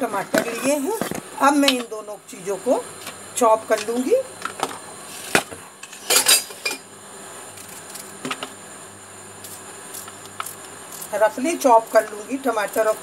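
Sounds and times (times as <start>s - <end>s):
faint steady hum: 0.0s - 13.0s
utensils clattering: 5.8s - 6.8s
kitchen utensils knocking and clinking: 5.9s - 6.8s.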